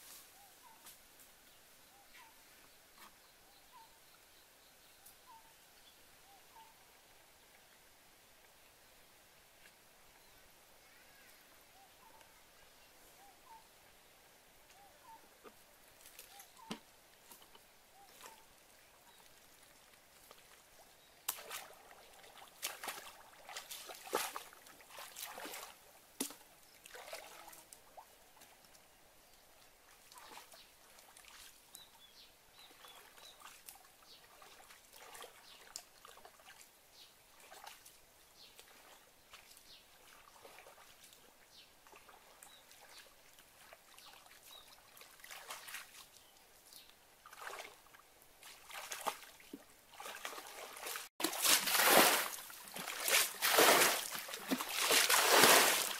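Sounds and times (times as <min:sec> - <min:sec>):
person wading through water: 0:19.2 - 0:28.7, 0:29.9 - 0:31.6, 0:32.7 - 0:36.7, 0:37.3 - 0:37.9, 0:38.5 - 0:41.2, 0:41.8 - 0:46.3, 0:47.2 - 0:55.9
water sloshing and splashing: 0:21.2 - 0:28.6, 0:32.8 - 0:36.7, 0:38.6 - 0:41.2, 0:41.8 - 0:46.3, 0:47.2 - 0:55.9.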